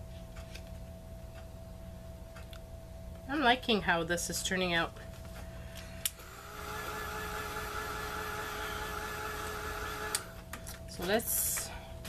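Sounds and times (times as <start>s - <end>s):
heat tool air rush and whine: 5.4s - 12.0s.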